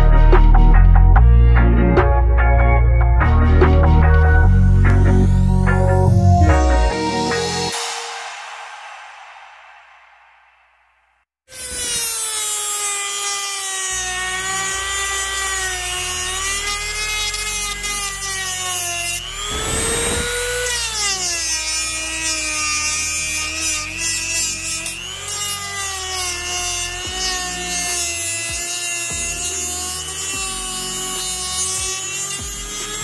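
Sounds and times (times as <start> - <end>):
rotary tool whining: 11.5 - 33.0.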